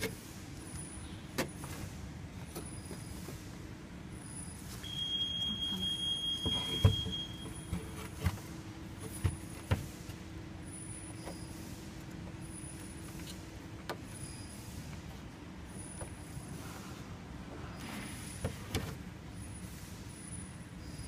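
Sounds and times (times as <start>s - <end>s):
high electronic beep: 4.8s - 7.5s
knocks and clunks of handling: 6.4s - 10.2s.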